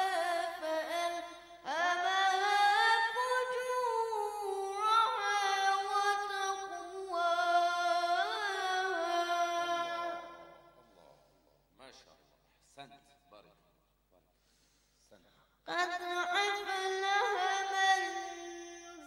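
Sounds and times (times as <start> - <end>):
boy chanting recitation: 0.0 - 11.2, 15.7 - 19.0
breaths: 1.3 - 1.7, 14.3 - 15.6.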